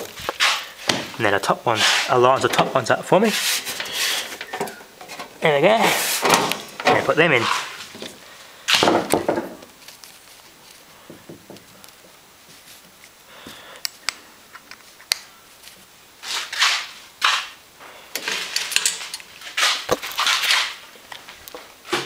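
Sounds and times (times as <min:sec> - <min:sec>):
scraping and rustling: 0:00.0 - 0:13.2, 0:15.6 - 0:17.6, 0:18.2 - 0:22.0
small metal parts clicking: 0:18.1 - 0:19.3.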